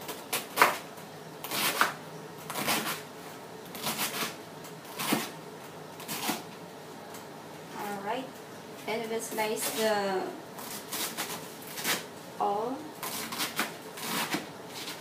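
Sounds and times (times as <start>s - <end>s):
knife cutting cabbage on board: 0.1s - 0.8s, 1.4s - 3.0s, 3.7s - 5.4s, 6.0s - 6.4s, 10.6s - 12.1s, 13.0s - 15.0s.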